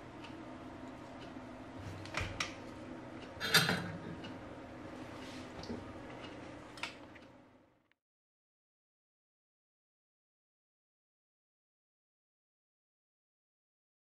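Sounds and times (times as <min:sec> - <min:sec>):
low steady hum: 0:00.0 - 0:08.0
workbench handling noise: 0:03.4 - 0:04.3.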